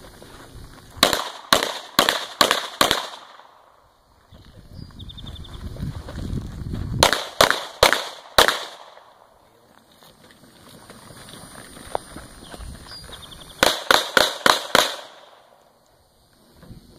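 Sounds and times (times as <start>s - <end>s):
pistol shots: 1.0s - 3.8s, 7.0s - 9.3s, 13.6s - 15.6s.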